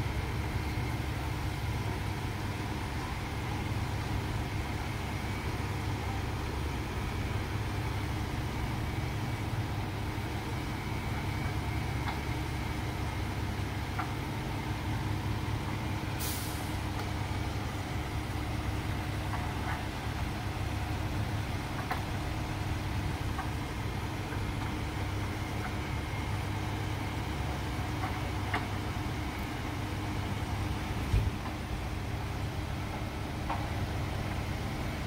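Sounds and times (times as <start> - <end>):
diesel engines idling: 0.0 - 35.0
air hiss: 16.2 - 16.8.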